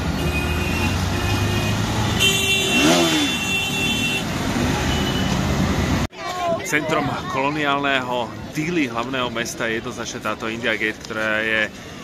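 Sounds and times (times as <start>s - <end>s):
road noise: 0.0s - 12.0s
vehicle horn: 0.2s - 5.4s.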